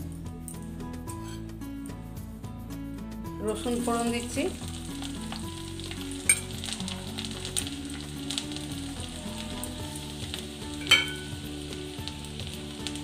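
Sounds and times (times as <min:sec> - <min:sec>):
garlic frying in hot oil: 0:03.5 - 0:13.0.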